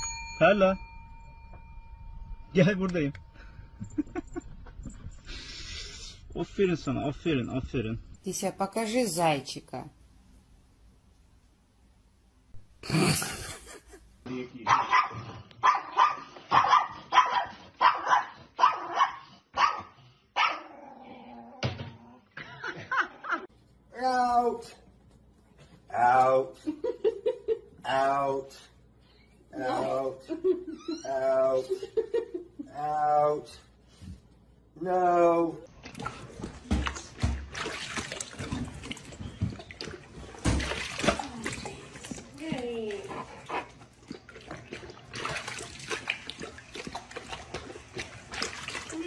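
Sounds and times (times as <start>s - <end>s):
small dog barking: 14.7s - 20.7s
dog lapping water from bowl: 35.8s - 49.0s.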